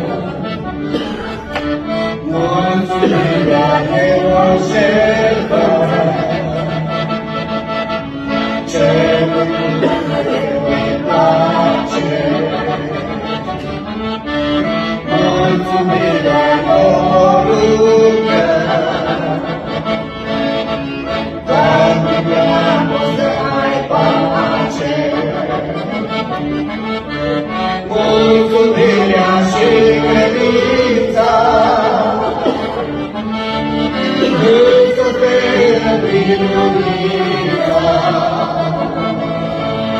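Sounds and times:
accordion chords: 0:00.0 - 0:39.9
person singing: 0:02.2 - 0:07.0, 0:15.0 - 0:19.6, 0:34.2 - 0:39.3.

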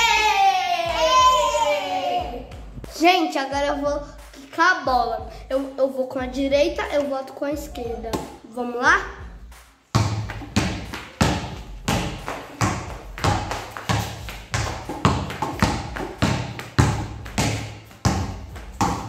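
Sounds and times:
basketball bouncing on tiled floor: 0:09.9 - 0:19.0.

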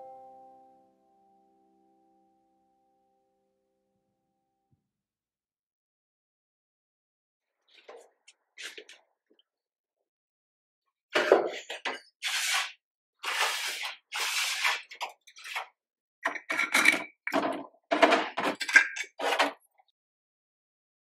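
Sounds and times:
plastic pot scraping in ceramic planter: 0:11.2 - 0:15.8, 0:16.4 - 0:19.6.

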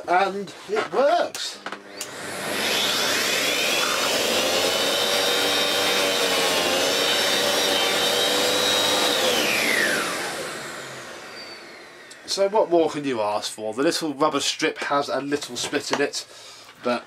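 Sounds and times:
vacuum cleaner motor whining: 0:01.4 - 0:13.1.

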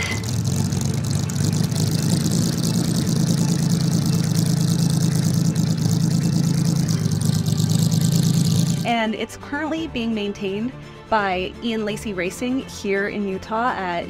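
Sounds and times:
car engine idling: 0:00.0 - 0:08.9.

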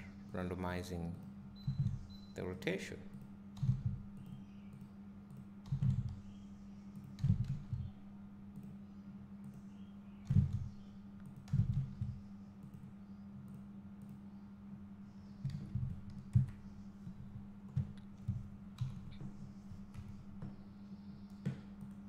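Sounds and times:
steady low hum: 0:00.0 - 0:22.0
keyboard and mouse clicks: 0:03.1 - 0:07.9, 0:09.4 - 0:14.2, 0:15.4 - 0:20.6.

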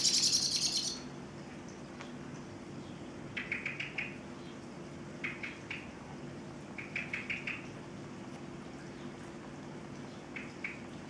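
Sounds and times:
blackbird alarm call chinking: 0:00.0 - 0:01.1, 0:02.8 - 0:04.6, 0:06.8 - 0:07.7
steady low hum: 0:00.0 - 0:11.0.

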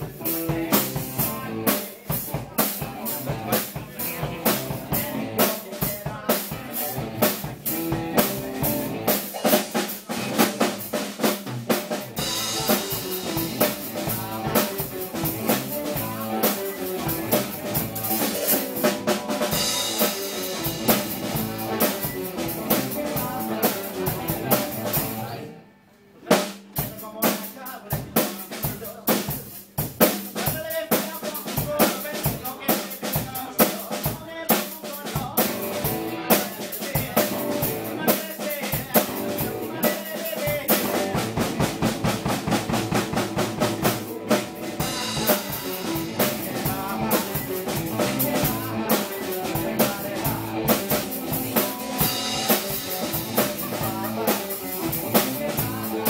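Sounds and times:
drum kit beat: 0:00.0 - 0:25.4, 0:26.2 - 0:56.0
live rock band playing: 0:00.0 - 0:25.5, 0:26.3 - 0:56.0.

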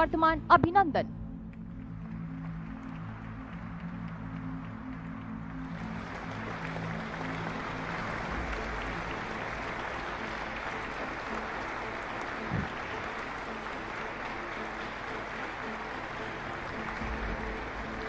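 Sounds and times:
audience applauding: 0:01.8 - 0:18.0.

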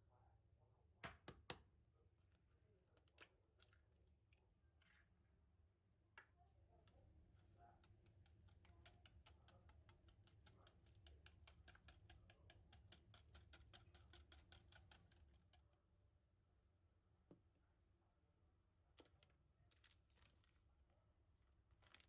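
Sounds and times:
whisk clicking against glass bowl: 0:07.0 - 0:15.7.

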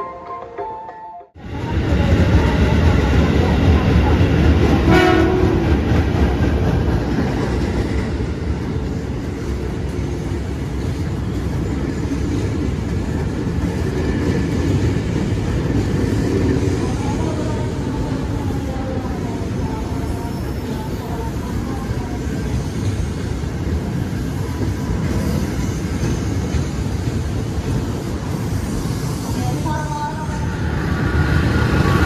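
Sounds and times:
electric train rumbling past: 0:00.2 - 0:32.0
train horn toot: 0:04.8 - 0:05.8.

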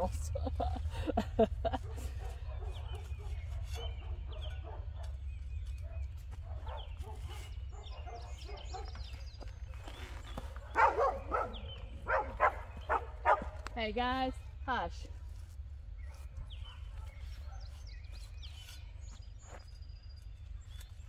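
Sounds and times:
dogs barking: 0:01.4 - 0:13.7, 0:16.0 - 0:18.5.

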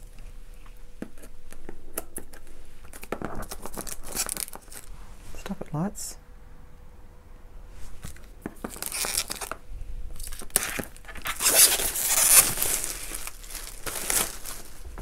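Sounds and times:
plastic wrap crinkling: 0:01.9 - 0:04.9, 0:08.0 - 0:15.0.

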